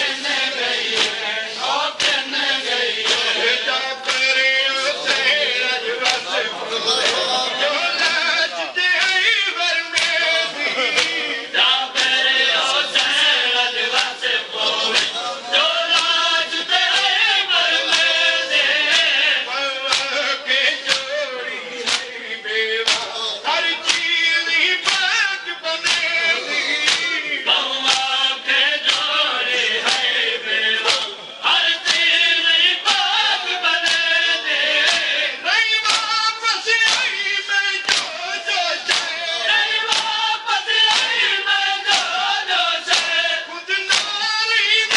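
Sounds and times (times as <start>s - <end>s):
men chanting in chorus: 0.0s - 44.9s
hands slapping chests: 0.5s - 1.2s, 1.9s - 4.5s, 6.0s - 6.3s, 9.9s - 11.2s, 11.9s - 12.3s, 13.9s - 14.2s, 14.9s - 15.2s, 15.9s - 16.2s, 16.9s - 17.1s, 17.9s - 18.2s, 18.9s - 19.2s, 19.8s - 20.2s, 20.8s - 21.1s, 21.8s - 22.1s, 22.8s - 23.1s, 23.8s - 24.1s, 24.8s - 25.1s, 25.8s - 26.2s, 26.8s - 27.2s, 27.8s - 28.2s, 28.8s - 29.2s, 29.8s - 30.1s, 30.8s - 31.2s, 31.8s - 32.1s, 33.8s - 35.2s, 35.8s - 37.2s, 37.8s - 39.2s, 39.8s - 43.3s, 43.9s - 44.3s.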